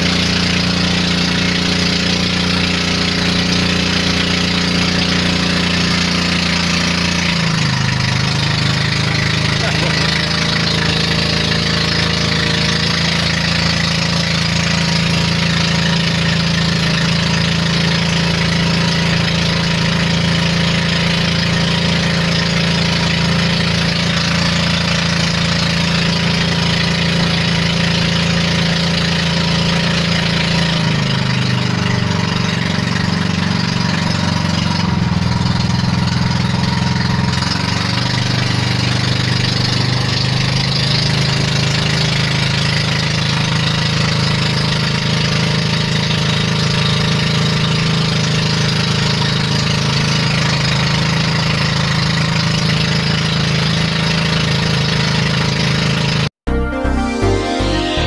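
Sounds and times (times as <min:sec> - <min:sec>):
motorboat engine running: 0:00.0 - 0:58.0.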